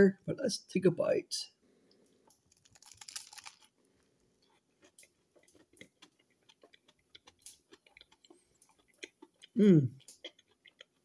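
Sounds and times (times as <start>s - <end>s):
crunching bite: 2.4s - 3.8s, 4.4s - 11.0s
chewing clicks: 4.4s - 11.0s.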